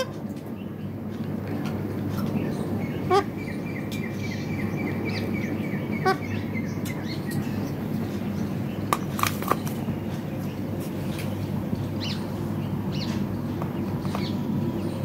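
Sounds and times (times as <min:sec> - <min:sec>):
parakeet calls: 0:02.4 - 0:07.8.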